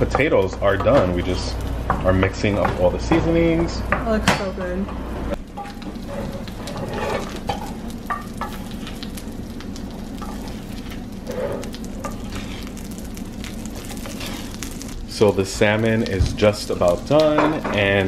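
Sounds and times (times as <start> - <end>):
fish sizzling in a skillet: 5.4 - 18.0.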